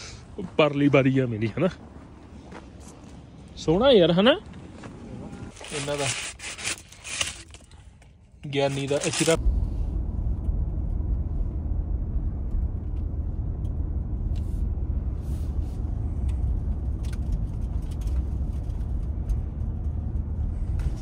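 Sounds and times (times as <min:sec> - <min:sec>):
vehicle driving rumble: 0:00.0 - 0:21.0.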